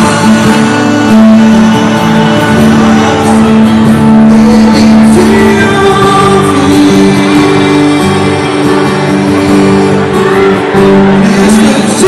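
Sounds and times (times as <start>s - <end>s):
acoustic guitar: 0.0s - 12.0s
electric bass: 0.0s - 12.0s
keyboard: 0.0s - 12.0s
man singing: 0.0s - 12.0s.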